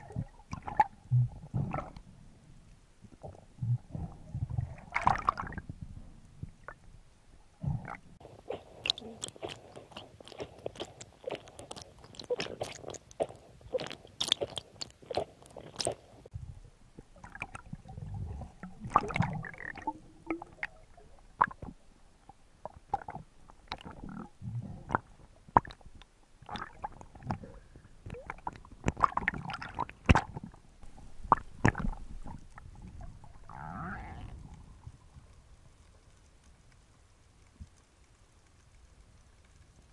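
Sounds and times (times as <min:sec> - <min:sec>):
low underwater rumbles: 0:00.0 - 0:39.9
underwater clicks and knocks: 0:28.1 - 0:33.1.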